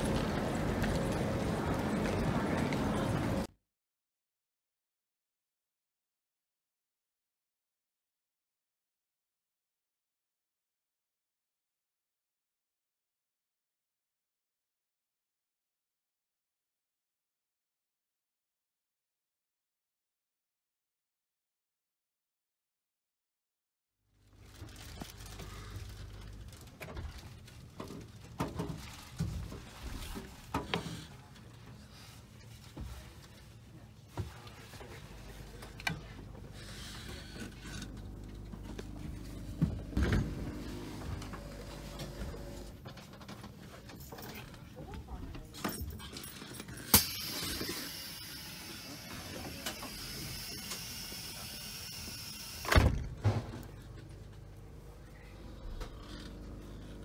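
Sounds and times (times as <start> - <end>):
train carriage rumble: 0.0 - 3.5, 24.5 - 46.4
train interior hiss: 46.9 - 52.8.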